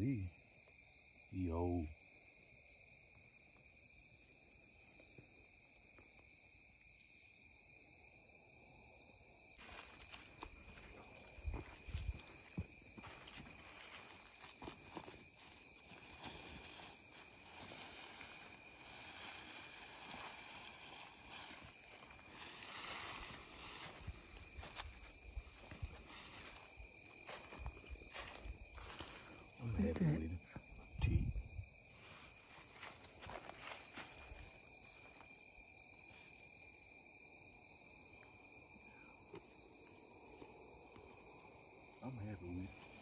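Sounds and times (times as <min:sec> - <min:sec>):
night insects trilling: 0:00.0 - 0:43.0
dry leaves rustling and crunching: 0:13.1 - 0:26.6.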